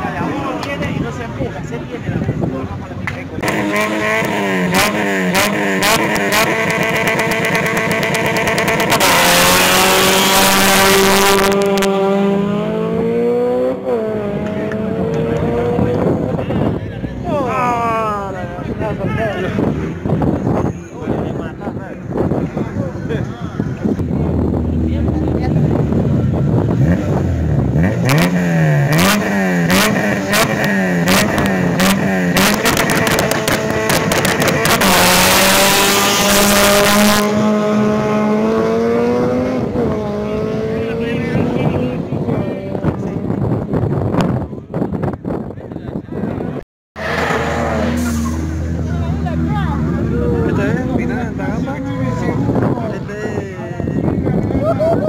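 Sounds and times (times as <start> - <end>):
car engine revving: 3.0 - 18.7, 23.8 - 44.9, 47.0 - 54.1
engine crackle: 26.6 - 37.2.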